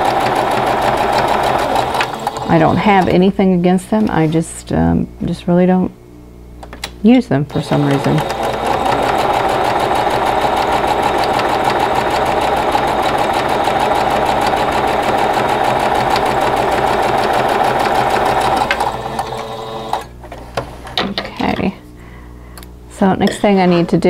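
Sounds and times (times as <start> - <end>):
sewing machine stitching: 0.0 - 3.2, 7.5 - 20.1.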